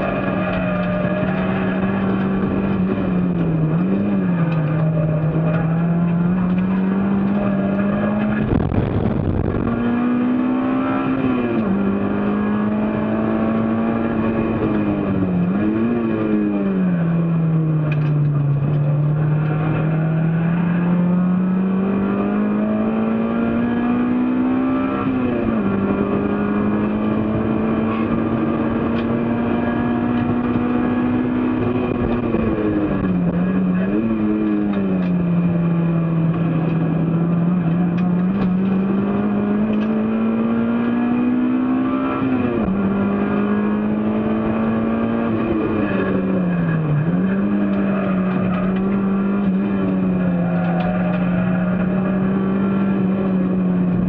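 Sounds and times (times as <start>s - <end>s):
race car engine revving: 0.0s - 54.0s
rush of rough noise: 8.1s - 10.2s.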